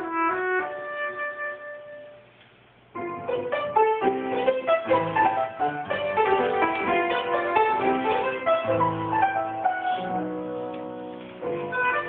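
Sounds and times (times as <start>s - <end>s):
piano notes and chords: 2.9s - 12.0s.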